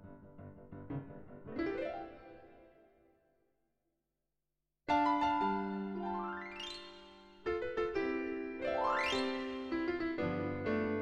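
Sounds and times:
piano chords: 0.0 - 2.8, 4.9 - 11.0.

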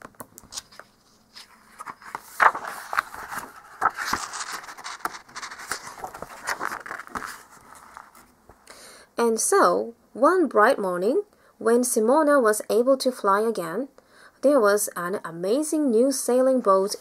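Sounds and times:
book pages turning: 0.0 - 8.4.

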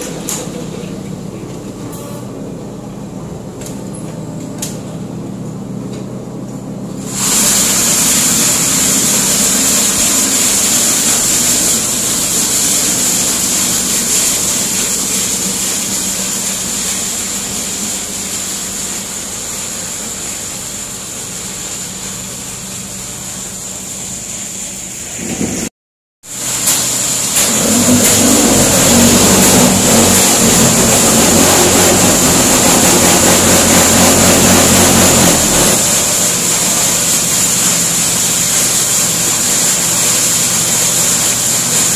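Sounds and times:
loud rushing noise: 7.0 - 17.8, 26.3 - 38.4
electric motor hum: 26.4 - 36.5.

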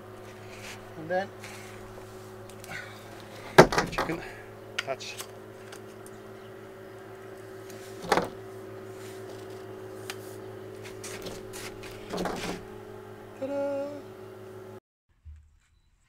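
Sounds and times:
distant farm machinery drone: 0.0 - 14.8
pole rattling: 1.5 - 4.5.

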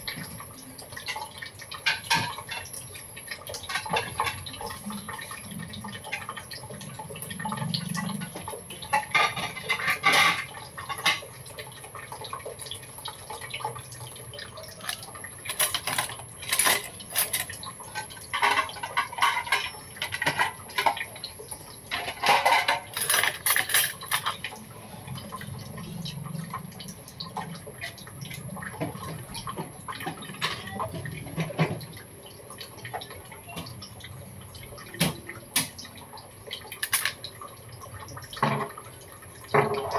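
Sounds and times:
metal spoon clinking against bowls: 14.8 - 20.9, 21.9 - 24.4, 36.8 - 37.2.

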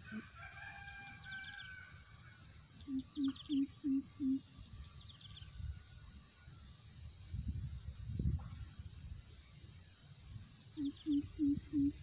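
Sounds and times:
high insect drone: 0.0 - 12.0
bird low hoots: 2.8 - 4.5, 10.7 - 12.0.

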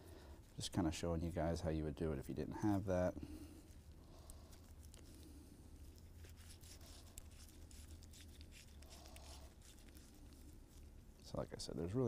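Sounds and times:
low steady hum: 0.0 - 12.0
sticky grease crackles: 3.6 - 12.0.

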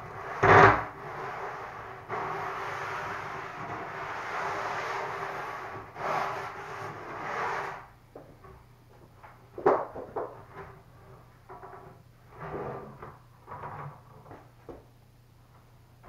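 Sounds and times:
wooden panel scraping: 0.0 - 7.9, 11.5 - 14.4.

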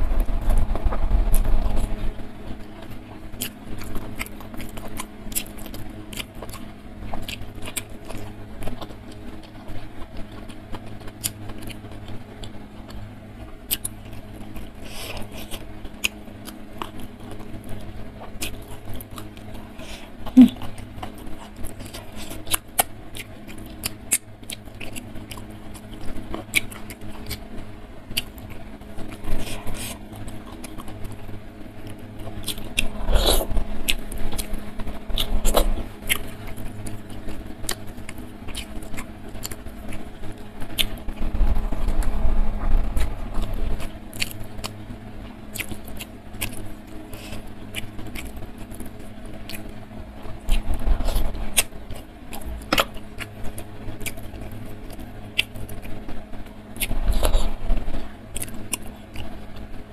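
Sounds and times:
chewing and wet mouth clicks: 2.8 - 9.6, 13.7 - 19.5, 31.8 - 42.2.

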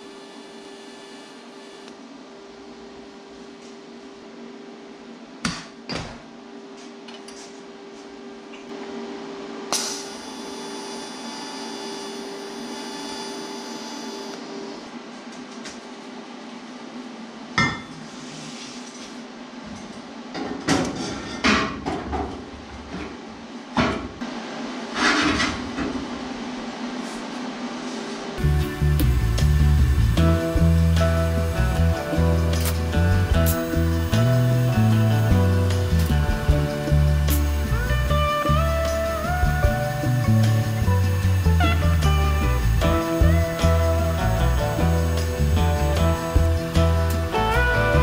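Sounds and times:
steady low hum: 22.5 - 48.0.

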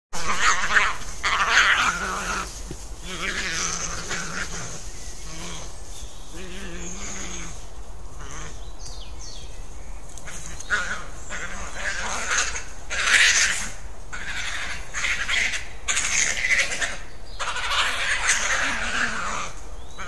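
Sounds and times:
badgers screaming: 0.2 - 7.6, 10.3 - 19.6.

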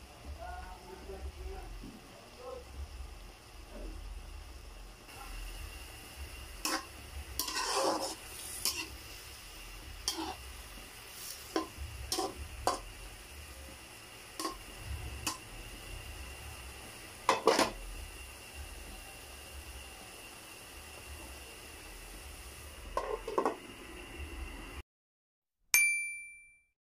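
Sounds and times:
faint hiss: 0.0 - 23.0
metal ladle scraping a wok: 6.6 - 12.9, 14.4 - 15.4, 17.2 - 17.8, 23.0 - 23.6.

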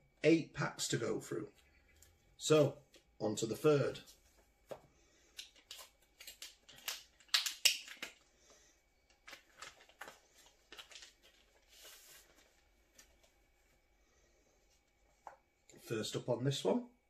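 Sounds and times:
packaging crinkling and rustling: 4.7 - 8.3, 9.0 - 13.4.

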